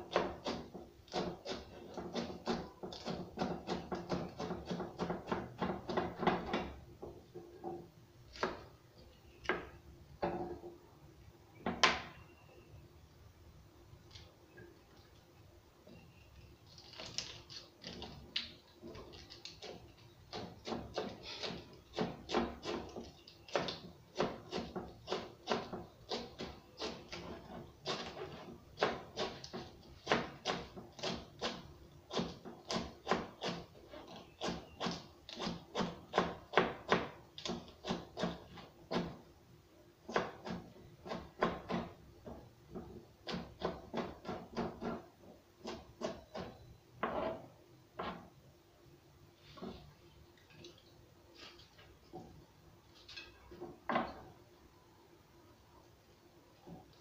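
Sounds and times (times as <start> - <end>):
knife cutting cabbage on board: 0.0 - 6.7, 8.3 - 8.6, 16.7 - 39.2, 40.1 - 42.0, 42.8 - 47.4.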